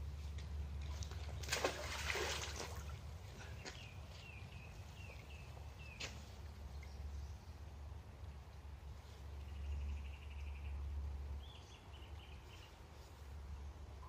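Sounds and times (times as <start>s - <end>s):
magnet splashing into water: 1.0s - 2.9s
bird chirping: 9.4s - 13.1s.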